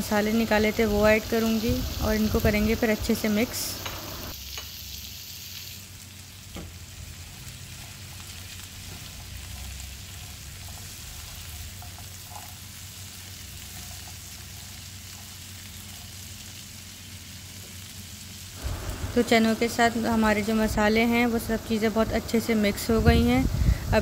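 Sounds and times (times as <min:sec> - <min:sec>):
food sizzling in oil: 0:00.0 - 0:24.0
spatula stirring: 0:08.9 - 0:12.7.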